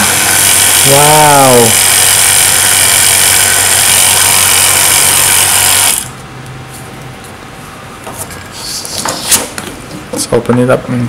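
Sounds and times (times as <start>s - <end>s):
vacuum pump humming: 0.0s - 7.2s.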